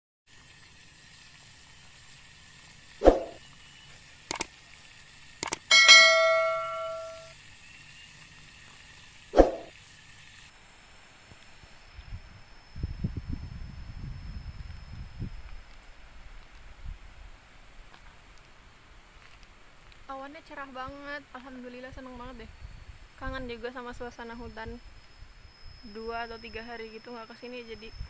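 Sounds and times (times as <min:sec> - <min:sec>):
sharp mouse clicks: 0:05.4 - 0:05.7
notification bell ding: 0:05.7 - 0:07.3
short hits: 0:05.7 - 0:07.3.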